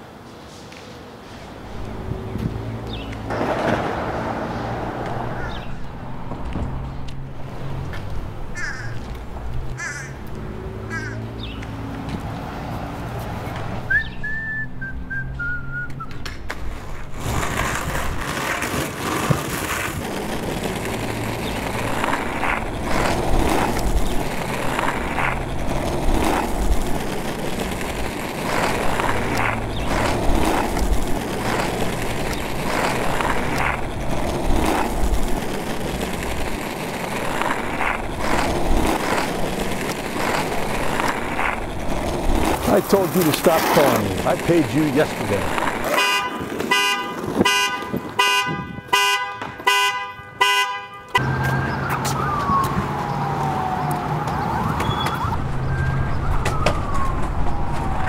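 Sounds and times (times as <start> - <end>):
skateboard wheels rolling on asphalt: 0.0 - 58.0
skateboard wheels knocking on cracks: 2.4 - 7.2, 15.9 - 49.8, 53.8 - 58.0
whistle stepping down in pitch: 13.9 - 16.2.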